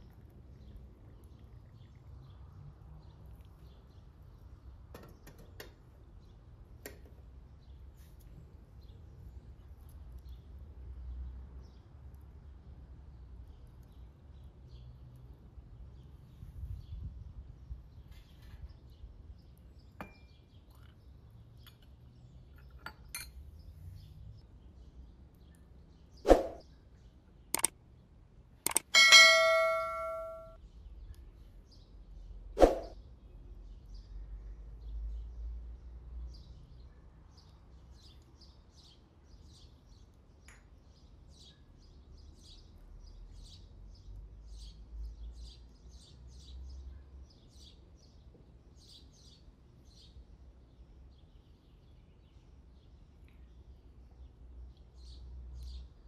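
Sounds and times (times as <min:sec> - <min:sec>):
birds chirping faintly: 0:00.0 - 0:56.0
tea ware clinking: 0:29.0 - 0:30.6.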